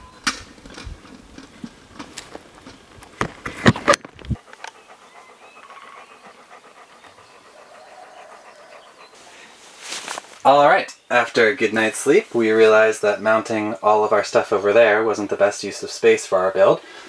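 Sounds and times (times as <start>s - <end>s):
dog panting: 4.1s - 9.8s.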